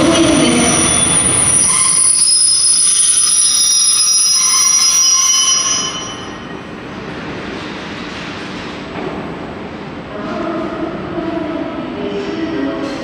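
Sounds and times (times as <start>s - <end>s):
train wheels squealing: 0.0s - 6.6s.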